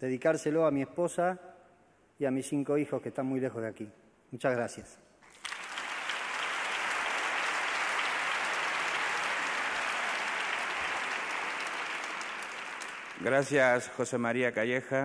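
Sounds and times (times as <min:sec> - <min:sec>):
audience applauding: 0:05.3 - 0:13.9.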